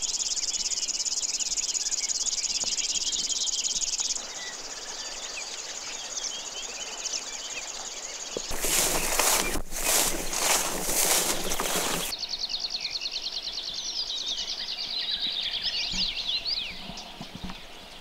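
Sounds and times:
insects chirring: 8.3s - 12.1s.

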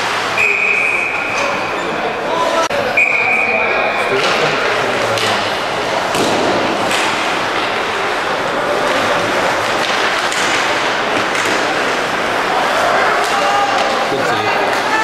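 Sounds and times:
arena noise: 0.0s - 15.0s.

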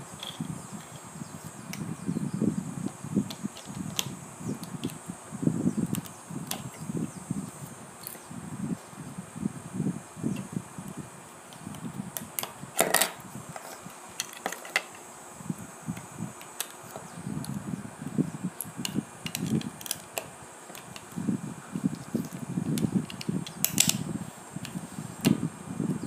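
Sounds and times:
muffled handling rumble: 0.0s - 26.0s
plastic bricks clicking: 22.2s - 24.0s.

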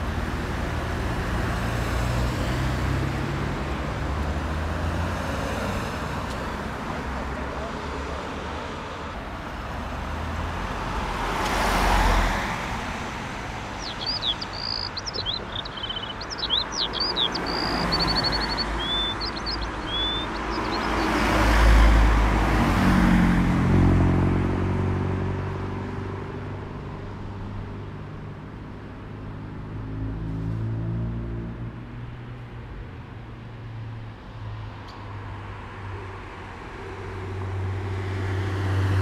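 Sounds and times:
road vehicles passing: 0.0s - 39.0s
bird chirping: 13.4s - 21.8s.

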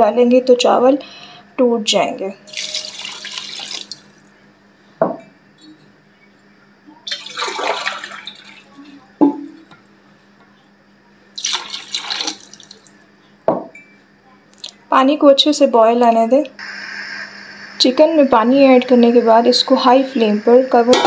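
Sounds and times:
water pouring into metal pot: 2.5s - 4.2s, 7.1s - 8.6s, 11.4s - 13.0s.

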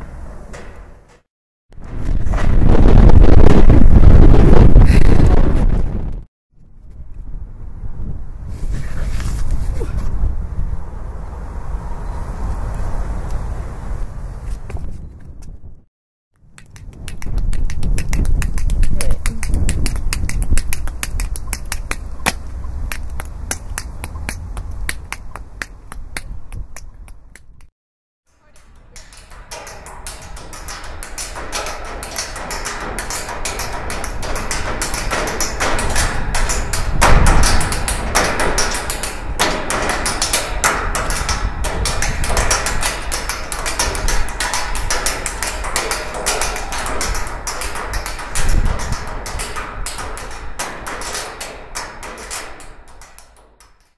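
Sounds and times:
sharp clicks and snaps: 16.4s - 27.7s
sharp knocks and thuds: 29.3s - 53.3s.

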